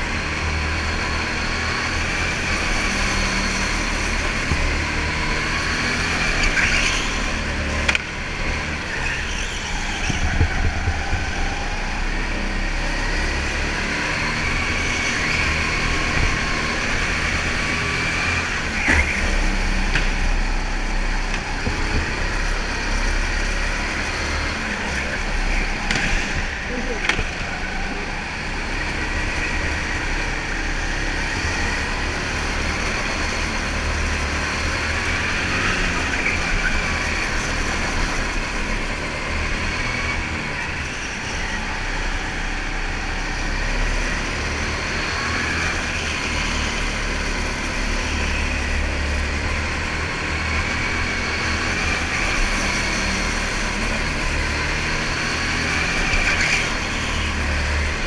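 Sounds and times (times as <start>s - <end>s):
go-kart motor running: 0.0s - 58.0s.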